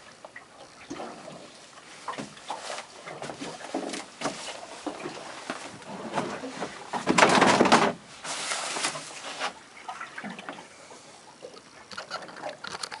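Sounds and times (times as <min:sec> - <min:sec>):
waves slapping against boat hull: 0:00.2 - 0:10.6.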